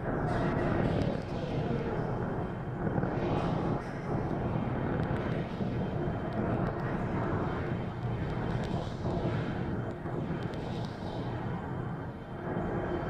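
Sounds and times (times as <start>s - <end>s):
steady low rumble: 0.0s - 13.0s
faint crackles: 0.2s - 11.6s.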